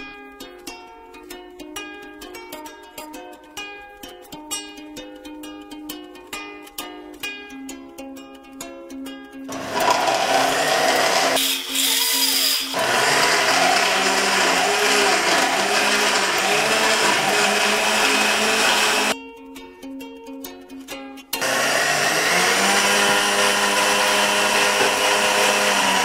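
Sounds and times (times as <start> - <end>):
ukulele background music: 0.0 - 12.6, 15.2 - 22.1
blender motor running: 9.5 - 19.2, 21.4 - 26.0.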